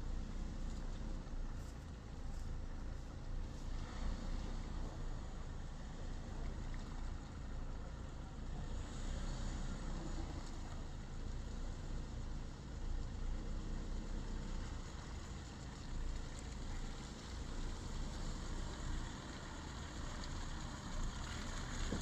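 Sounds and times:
car engine running: 0:00.0 - 0:22.0.

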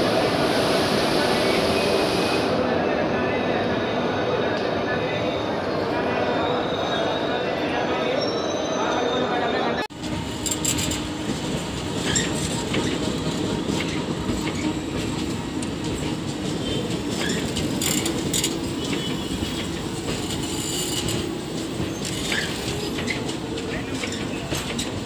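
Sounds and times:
train wheels rumbling on rail: 0:09.9 - 0:25.0
wheel and coupling squeaks: 0:16.7 - 0:19.3.

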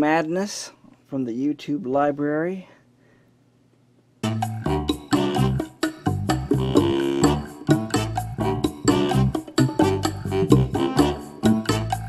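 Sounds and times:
rhythmic music with strong bass: 0:04.2 - 0:12.0.

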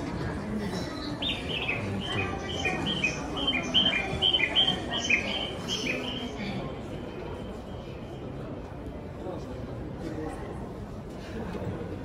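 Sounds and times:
murmur of crowd: 0:00.0 - 0:12.0
electronic bird chirps: 0:01.2 - 0:06.6.

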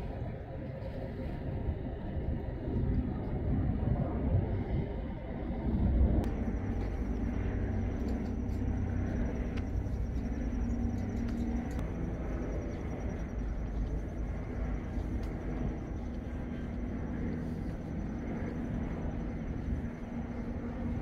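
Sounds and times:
faint high whine: 0:04.0 - 0:21.0
traffic engine rumble: 0:05.5 - 0:21.0.

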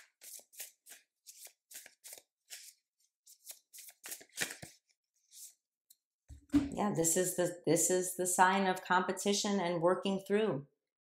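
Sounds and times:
cards being shuffled by hand: 0:00.0 - 0:05.6.

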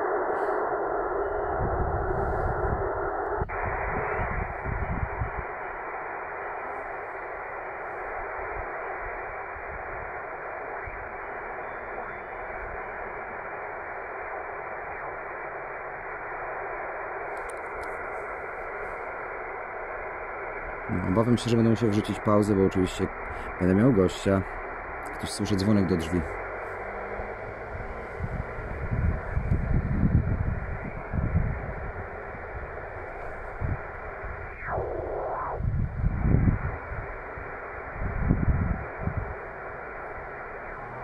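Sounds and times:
low rumble: 0:00.0 - 0:05.6, 0:24.4 - 0:41.0
radio static hiss: 0:00.0 - 0:41.0.

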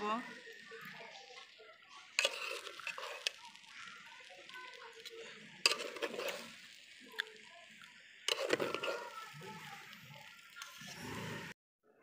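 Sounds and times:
water pouring and splashing: 0:00.3 - 0:11.5
pot clinking: 0:02.2 - 0:03.6, 0:05.6 - 0:06.6, 0:08.3 - 0:09.1.

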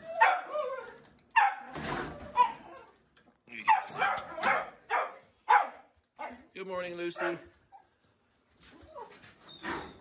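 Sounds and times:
dogs barking: 0:01.3 - 0:01.7, 0:03.6 - 0:06.5.

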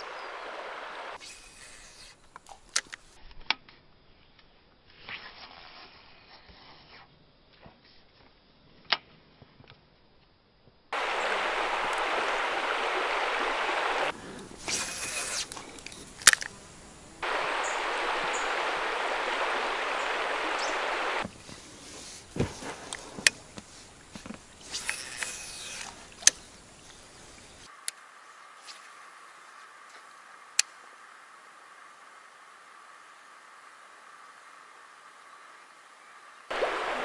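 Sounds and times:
flowing river water: 0:00.0 - 0:02.0, 0:11.0 - 0:15.6, 0:17.2 - 0:37.0.

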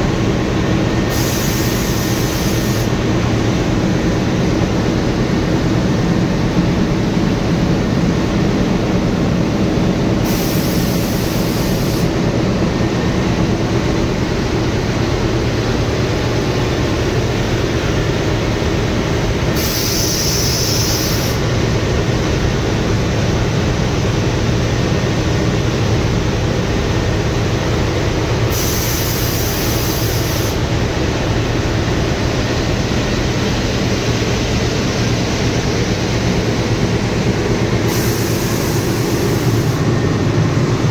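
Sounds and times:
diesel locomotive engine running: 0:00.0 - 0:40.9
high hiss: 0:01.0 - 0:03.0, 0:10.2 - 0:12.2, 0:19.5 - 0:21.5, 0:28.5 - 0:30.6, 0:37.8 - 0:39.9.

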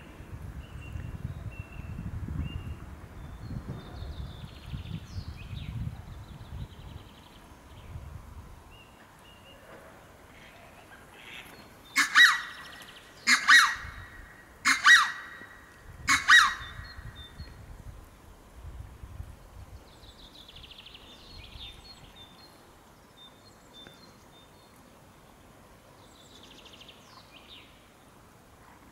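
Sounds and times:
peacock calling: 0:10.4 - 0:17.1.

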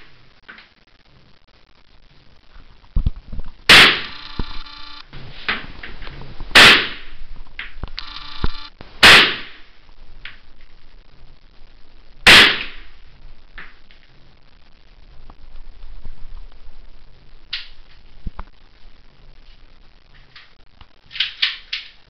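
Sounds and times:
rifle shots: 0:03.7 - 0:05.0, 0:06.6 - 0:07.1, 0:08.1 - 0:09.6
small clicks: 0:04.0 - 0:05.0, 0:07.6 - 0:08.8.

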